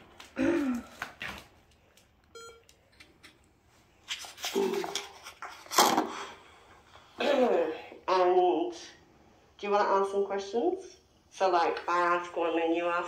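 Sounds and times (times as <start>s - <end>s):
short electronic beep: 2.4s - 2.6s.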